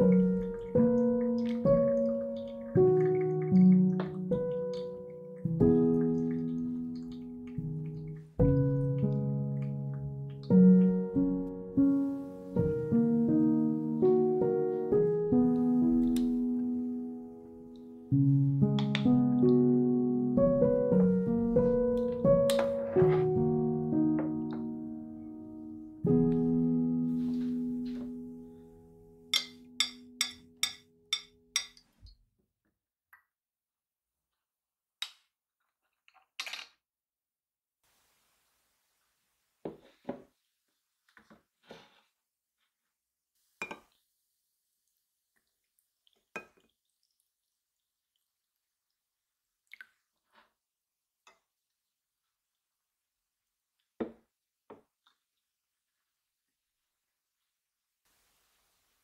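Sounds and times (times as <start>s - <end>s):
coffee drips falling into cup: 0.0s - 9.7s, 45.4s - 47.9s
soft background music: 0.0s - 30.7s.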